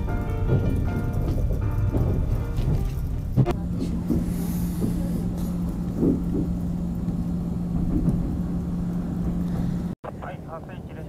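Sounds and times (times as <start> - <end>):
wheels knocking on track: 0.0 - 10.0
train carriage rumble and hum: 0.0 - 11.0.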